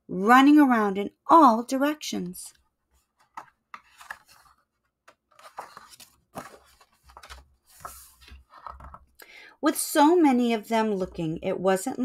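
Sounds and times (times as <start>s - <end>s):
paper page turning: 2.9s - 9.0s.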